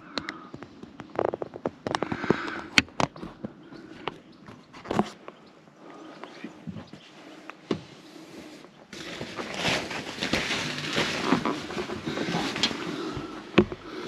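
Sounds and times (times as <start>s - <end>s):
plastic tarp rustling: 8.9s - 13.9s.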